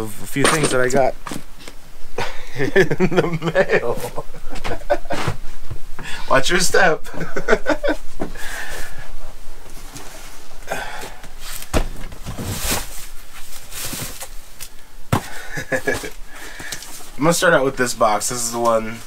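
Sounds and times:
cardboard boxes rustling: 0:07.9 - 0:17.5.

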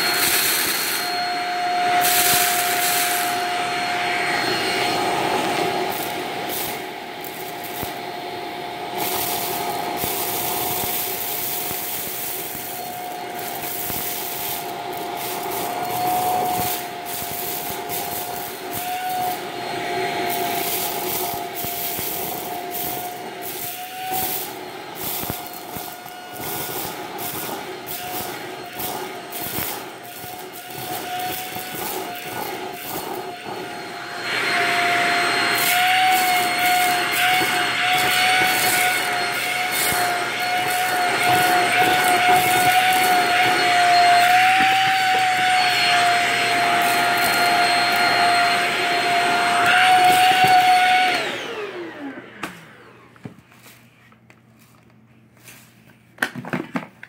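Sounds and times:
stick vacuum whining: 0:00.0 - 0:55.0
rice grains rattling: 0:05.8 - 0:19.5, 0:20.2 - 0:33.4, 0:35.4 - 0:48.0.

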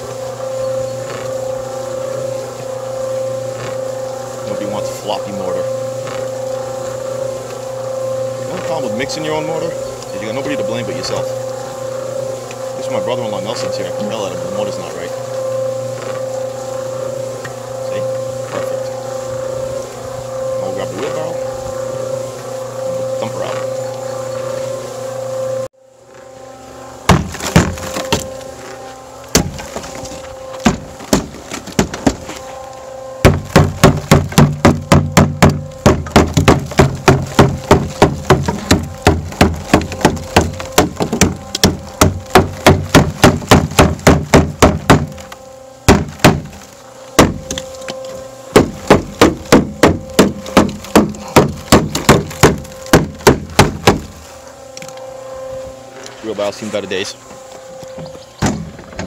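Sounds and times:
mortar mixer running: 0:03.3 - 0:15.9, 0:33.2 - 0:45.2
wooden club banging on wheelbarrow: 0:27.1 - 0:28.3, 0:33.2 - 0:45.2, 0:45.9 - 0:46.6, 0:48.6 - 0:54.1.

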